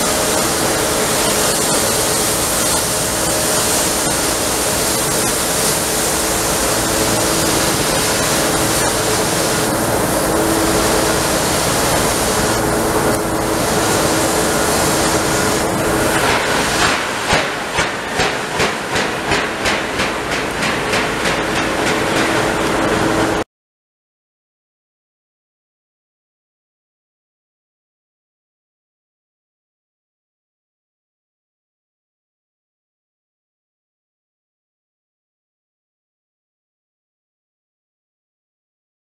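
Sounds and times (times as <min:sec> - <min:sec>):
locomotive exhaust chuffs: 0:00.0 - 0:23.4
steam locomotive hissing: 0:00.0 - 0:23.4.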